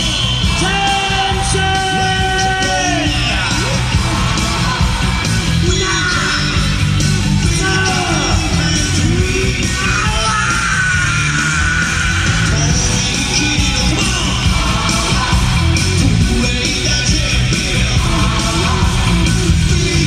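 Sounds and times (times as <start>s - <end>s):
crowd yelling: 0.0s - 20.0s
rock music with singing: 0.0s - 20.0s.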